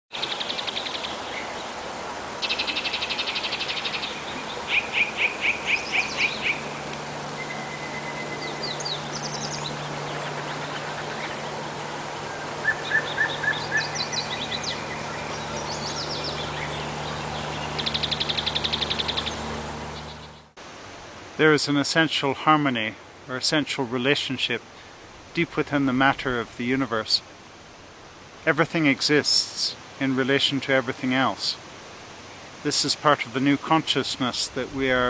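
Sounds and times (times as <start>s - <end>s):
steady hiss: 0.1s - 19.9s, 20.6s - 35.0s
songbirds singing: 0.1s - 20.6s.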